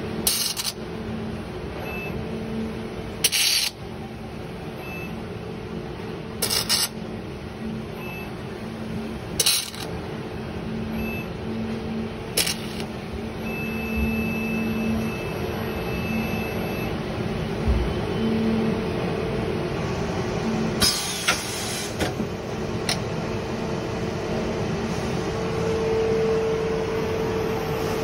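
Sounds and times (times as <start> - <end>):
welding machine humming: 0.0 - 1.4, 2.6 - 3.9, 6.4 - 7.2, 8.6 - 10.3, 11.6 - 13.2.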